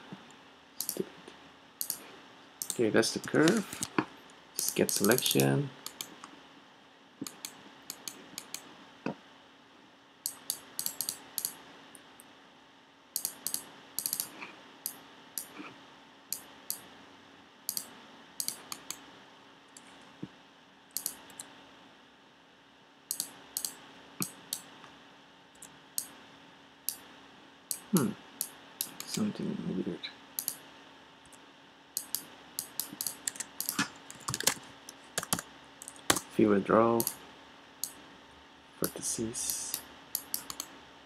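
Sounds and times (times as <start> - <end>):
faint steady hum: 0.0 - 41.0
keyboard and mouse clicking: 0.8 - 1.0, 1.8 - 2.0, 2.6 - 4.0, 4.6 - 6.3, 7.2 - 8.6, 10.3 - 11.6, 13.2 - 15.5, 17.7 - 19.0, 20.9 - 21.5, 23.1 - 24.7, 27.7 - 29.2, 30.4 - 30.6, 32.0 - 36.3, 39.5 - 40.7.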